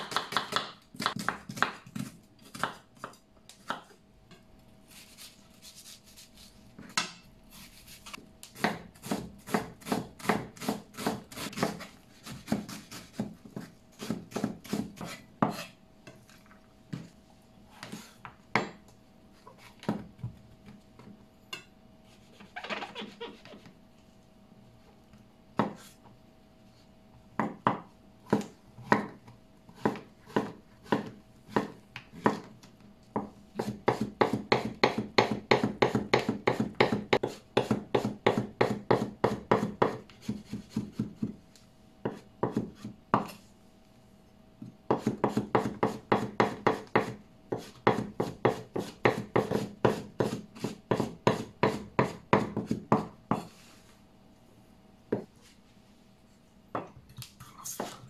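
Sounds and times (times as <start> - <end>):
knife chopping on wooden board: 0.0 - 3.9, 8.5 - 15.7, 25.6 - 25.8, 27.4 - 32.5, 33.2 - 41.4, 42.0 - 43.4, 44.9 - 53.5.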